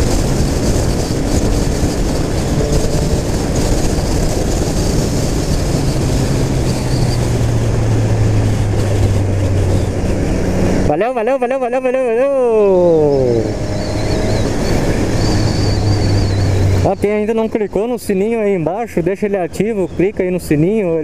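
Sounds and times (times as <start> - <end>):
motorcycle engine running: 0.0 - 10.9
wind noise: 0.0 - 11.2, 12.4 - 18.5.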